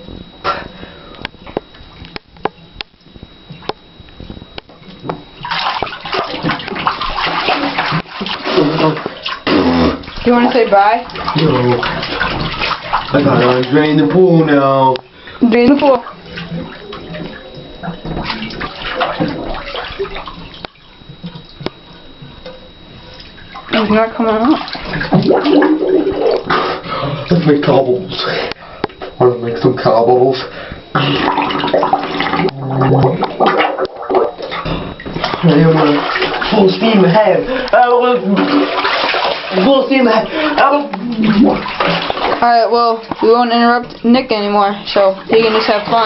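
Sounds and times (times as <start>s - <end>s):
bathwater sloshing and splashing: 0.0s - 46.0s
knocks in bathtub: 9.9s - 13.7s, 15.8s - 20.3s, 24.6s - 26.8s, 31.0s - 36.6s.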